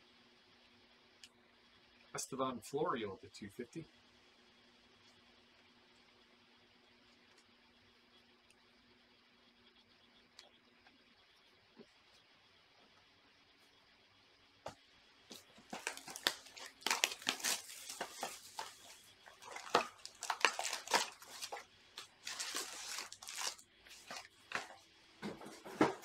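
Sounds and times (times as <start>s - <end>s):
cardboard and wrapper tearing: 15.7s - 24.7s.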